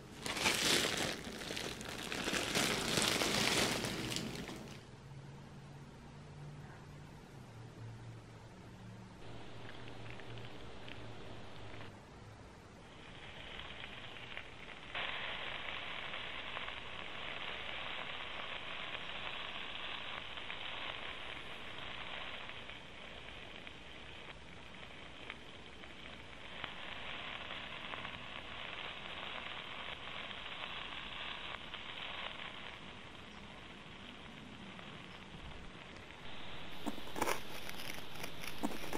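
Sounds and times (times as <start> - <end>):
sausage sizzling in hot oil: 0.0 - 4.8, 12.9 - 38.9.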